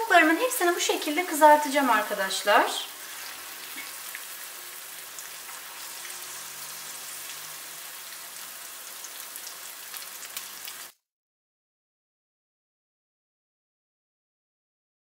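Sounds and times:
food deep-frying in oil: 0.0 - 11.0.

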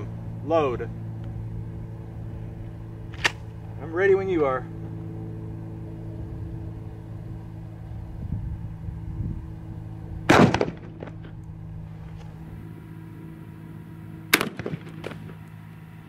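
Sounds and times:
shotgun shot: 10.3 - 11.2, 14.3 - 15.3.

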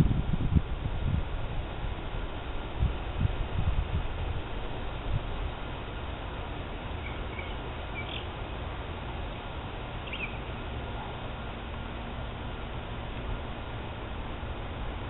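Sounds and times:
low outdoor rumble and hiss: 0.0 - 15.0
bird chirps: 7.0 - 8.4, 10.0 - 10.5.

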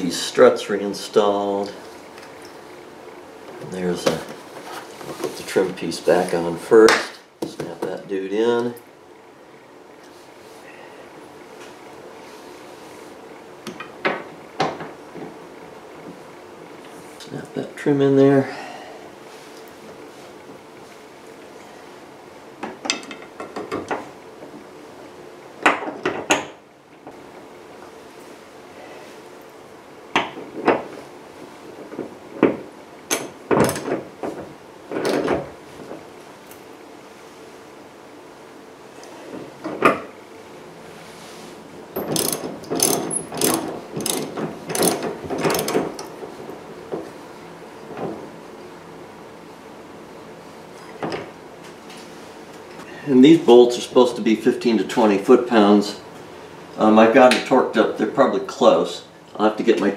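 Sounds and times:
ratchet wrench clicking: 42.0 - 45.7.

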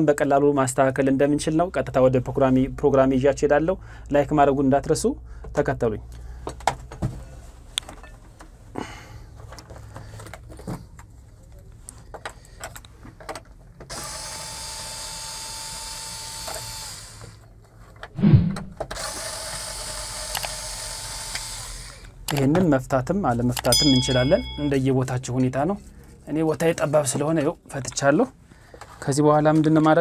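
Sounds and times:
electric screwdriver running: 13.9 - 17.4, 18.9 - 22.2
thump: 18.2 - 18.8.

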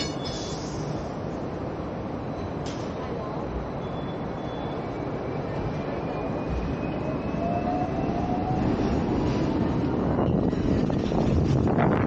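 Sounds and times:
electric tram running on track: 0.0 - 12.0
faint tram whine: 0.0 - 12.0.

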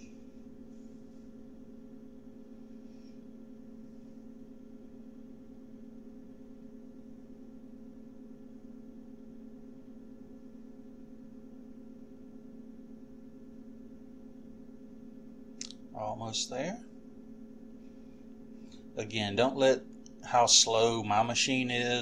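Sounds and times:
steady low hum: 0.0 - 22.0
faint steady tones: 15.9 - 22.0.

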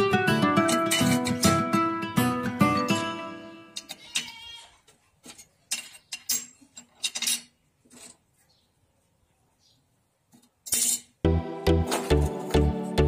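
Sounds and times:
metal parts clinking: 5.2 - 8.2, 10.6 - 11.2.

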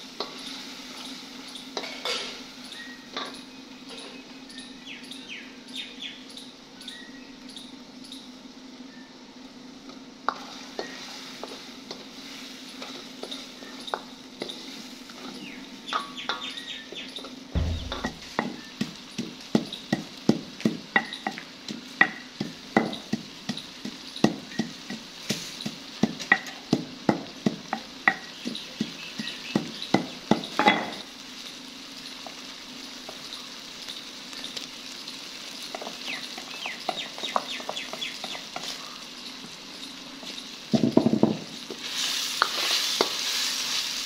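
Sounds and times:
chicken sizzling in a wok: 0.0 - 44.0
pestle pounding in mortar: 17.6 - 21.2.

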